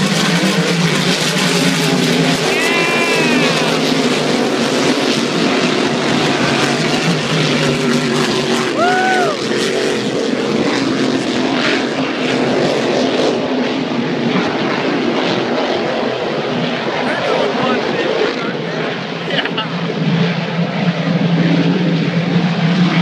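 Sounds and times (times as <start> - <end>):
race boat engines droning: 0.0 - 23.0.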